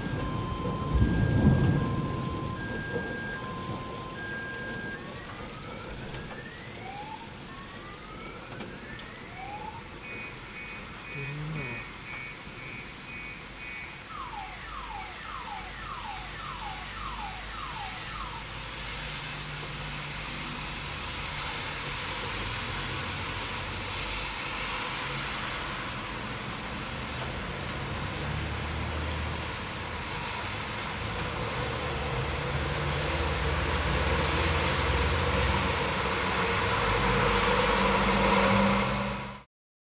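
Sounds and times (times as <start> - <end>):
car alarm cycling tones: 0.0 - 6.8, 9.4 - 18.5.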